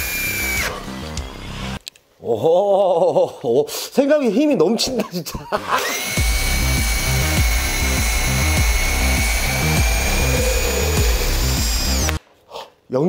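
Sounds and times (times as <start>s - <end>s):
cordless drill driving screw into wood: 0.0s - 1.4s, 5.8s - 12.2s.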